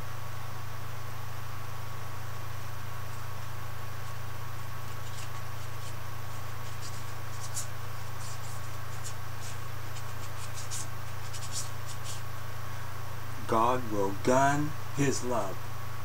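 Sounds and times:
low hum: 0:00.0 - 0:16.0
paintbrush strokes on canvas: 0:04.0 - 0:12.4.

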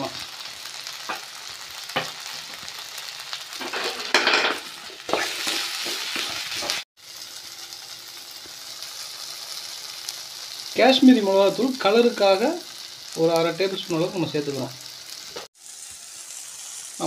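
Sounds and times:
food sizzling in hot oil: 0:00.0 - 0:17.0
spatula scraping and stirring: 0:03.6 - 0:06.8.

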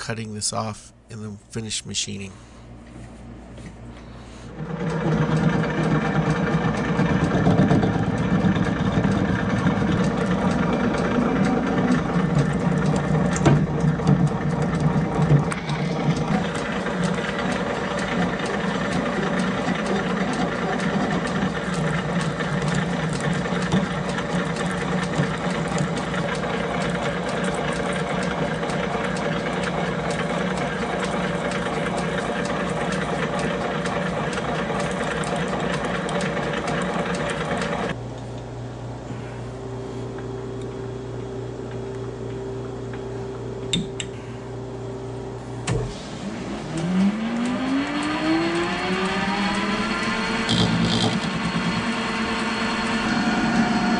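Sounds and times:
metal lathe whirring: 0:04.5 - 0:38.0, 0:45.6 - 0:53.9.

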